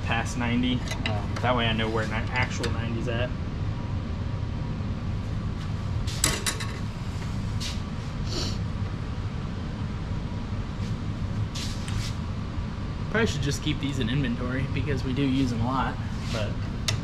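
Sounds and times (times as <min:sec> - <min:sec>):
low shop hum: 0:00.0 - 0:17.0.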